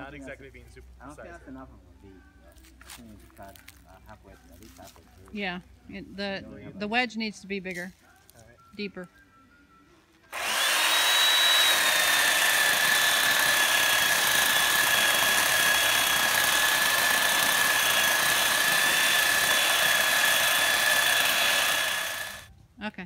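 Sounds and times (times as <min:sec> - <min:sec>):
electric chainsaw whining: 0:10.3 - 0:22.5.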